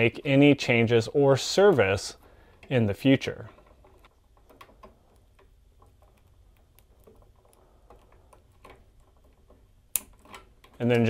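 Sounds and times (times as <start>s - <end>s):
small plastic clicks: 3.4s - 11.0s.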